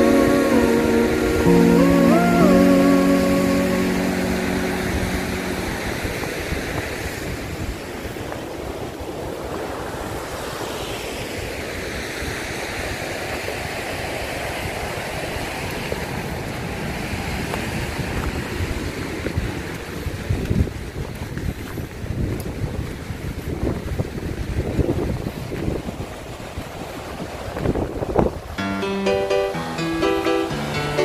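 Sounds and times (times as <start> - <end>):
wind buffeting microphone: 12.9 - 28.6.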